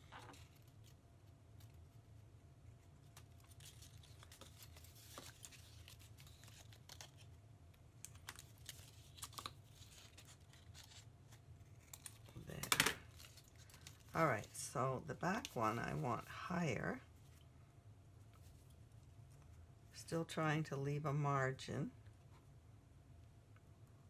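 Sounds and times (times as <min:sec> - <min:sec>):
paper rustling: 0:00.0 - 0:01.0, 0:02.8 - 0:07.4, 0:08.1 - 0:14.6.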